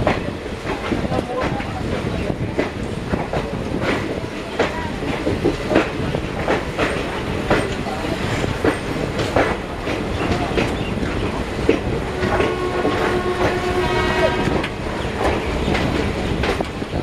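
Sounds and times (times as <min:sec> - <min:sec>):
train wheels clattering over rail joints: 0:00.0 - 0:17.0.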